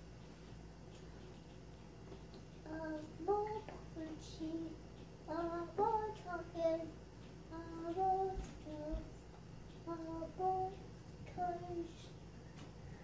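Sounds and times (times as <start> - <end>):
young child singing: 2.6 - 9.2, 9.8 - 12.2.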